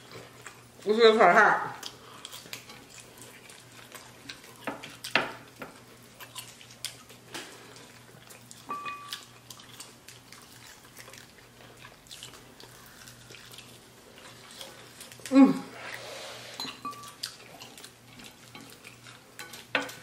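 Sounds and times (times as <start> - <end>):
chewing and crunching chicken wings: 0.0 - 1.0, 1.8 - 15.8, 17.0 - 20.0.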